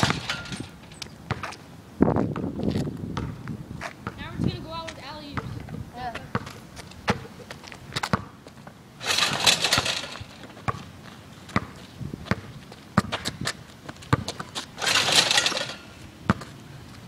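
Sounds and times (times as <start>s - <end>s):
hoop rim and backboard rattling: 0.0s - 1.5s, 9.0s - 10.9s, 14.1s - 16.5s
basketball bouncing on asphalt: 0.0s - 16.6s.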